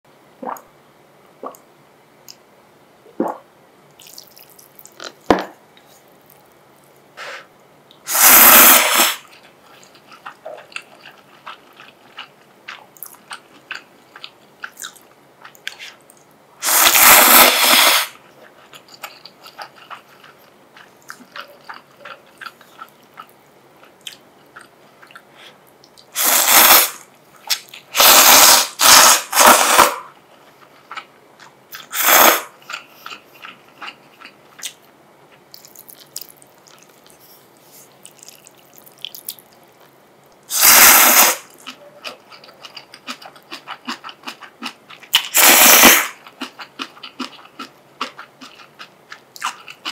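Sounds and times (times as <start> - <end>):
noodle slurping: 8.1 - 9.3, 16.6 - 18.2, 26.2 - 30.0, 40.5 - 41.5, 45.3 - 46.2
soft chewing: 9.3 - 16.4, 18.2 - 26.1, 30.2 - 31.9, 32.6 - 40.5, 41.5 - 45.2, 46.2 - 49.9.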